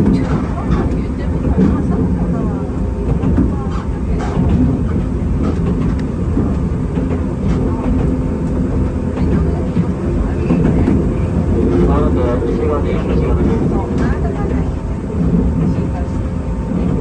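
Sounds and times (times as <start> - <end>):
train wheels rumbling: 0.0 - 17.0.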